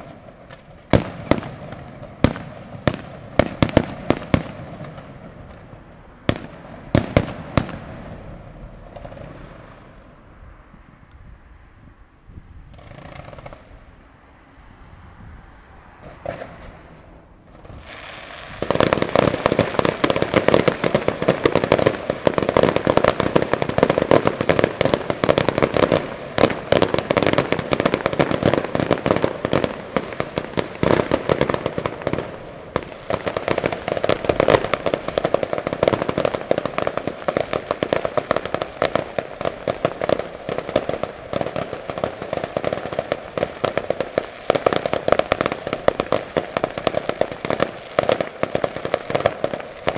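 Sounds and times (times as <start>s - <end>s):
fireworks bangs and crackling: 0.0s - 10.6s, 12.6s - 14.0s, 15.0s - 49.9s.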